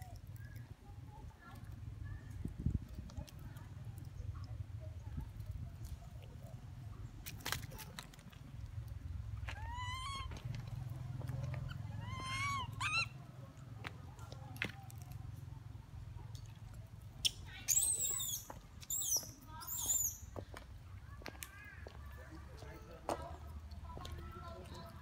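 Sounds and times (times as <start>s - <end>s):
young macaque squealing: 9.6s - 10.3s, 11.6s - 13.2s, 17.2s - 20.2s.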